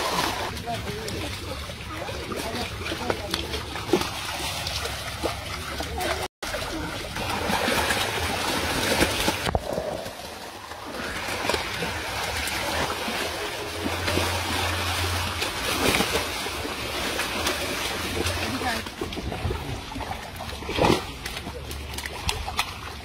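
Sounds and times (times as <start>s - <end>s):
fish thrashing and water splashing: 0.0s - 23.0s.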